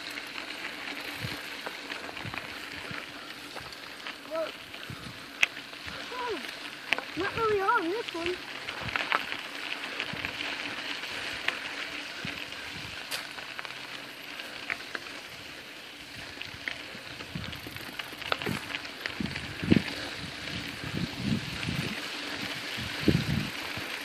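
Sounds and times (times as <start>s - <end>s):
bicycle tyres crunching on dirt: 0.0s - 24.0s
bike ticks and rattles: 0.0s - 24.0s.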